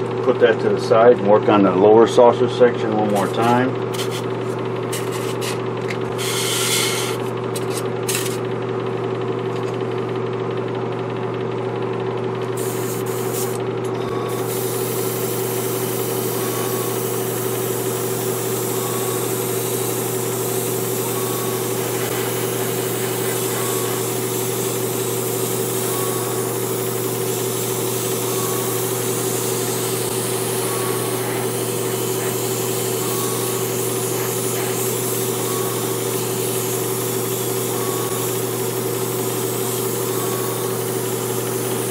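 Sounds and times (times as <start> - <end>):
air compressor humming: 0.0 - 41.9
airbrush hissing: 6.1 - 7.3, 12.6 - 13.6, 14.3 - 41.9.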